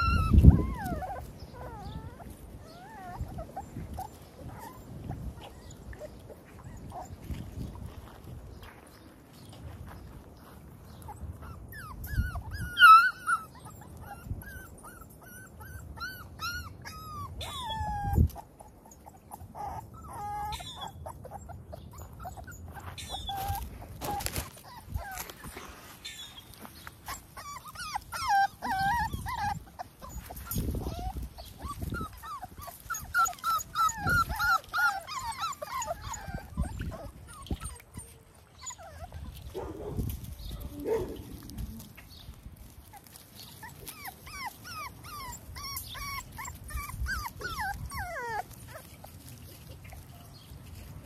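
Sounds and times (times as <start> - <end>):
puppies whining and whimpering: 0.0 - 7.9, 10.8 - 50.9.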